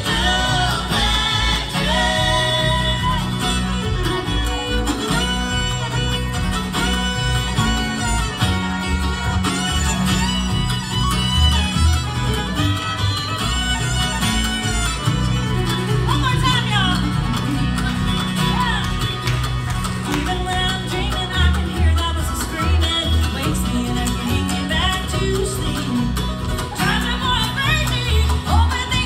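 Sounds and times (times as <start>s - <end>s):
upright bass pulse: 0.0s - 13.2s
bluegrass band playing: 0.0s - 29.0s
fiddle lead line: 0.0s - 29.0s.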